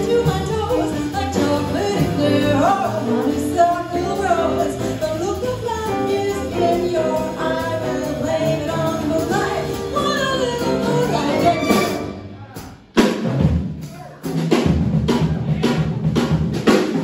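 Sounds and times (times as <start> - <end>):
woman singing: 0.0 - 12.1
jazz band playing: 0.0 - 17.0.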